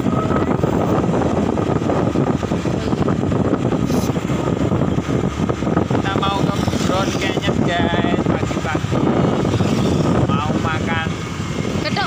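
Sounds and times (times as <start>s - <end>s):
motorbike engine running: 0.0s - 12.0s
wind buffeting microphone: 0.0s - 12.0s.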